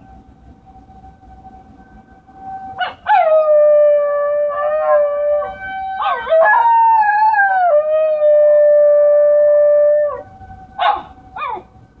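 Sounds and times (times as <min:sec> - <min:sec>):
dog yelps: 0:10.8 - 0:11.7.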